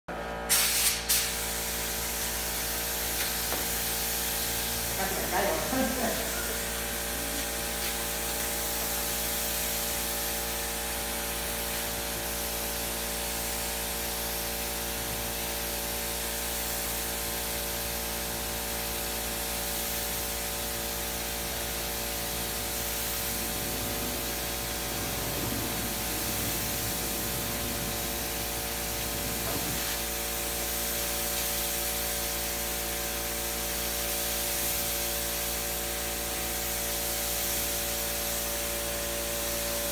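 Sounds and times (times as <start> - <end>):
spray gun hissing: 0.5 - 39.9
steady hum: 1.6 - 13.5, 19.3 - 32.4.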